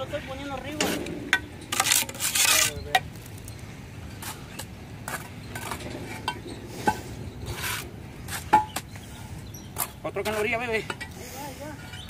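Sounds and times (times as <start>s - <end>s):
trowel scraping mortar: 0.7s - 3.0s, 6.8s - 8.8s
trowel clinking on concrete blocks: 0.7s - 11.2s.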